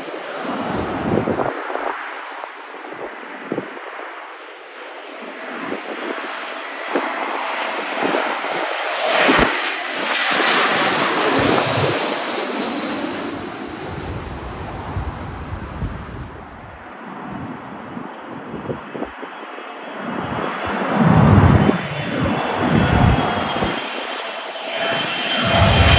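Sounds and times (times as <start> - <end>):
another jet approaching: 0.0 - 25.9
jet airliner passing overhead: 0.0 - 25.9
falling jet engine whine: 6.9 - 16.8, 19.9 - 25.9.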